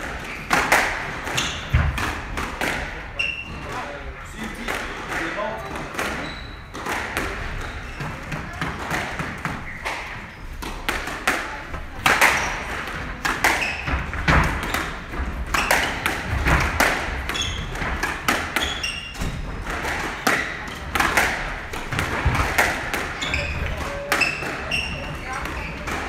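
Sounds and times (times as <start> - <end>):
squash ball hitting rackets: 0.0 - 3.0, 4.6 - 26.0
shoes squeaking on wooden floor: 6.1 - 6.8, 7.5 - 8.6, 13.4 - 16.4, 17.2 - 19.6, 23.0 - 26.0.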